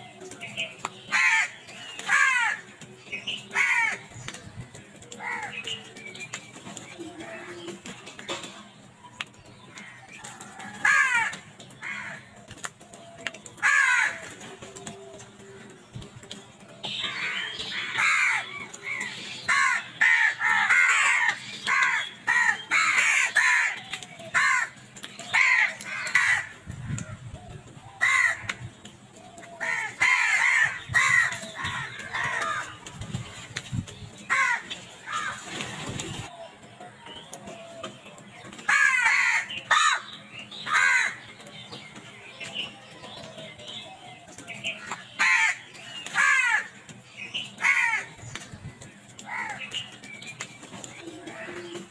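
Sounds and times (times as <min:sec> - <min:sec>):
crows calling: 0:01.0 - 0:04.1, 0:05.1 - 0:05.8, 0:09.7 - 0:12.4, 0:13.0 - 0:14.4, 0:17.0 - 0:26.7, 0:27.9 - 0:28.6, 0:29.3 - 0:32.8, 0:34.2 - 0:35.5, 0:38.6 - 0:41.6, 0:44.6 - 0:48.4, 0:49.2 - 0:49.9.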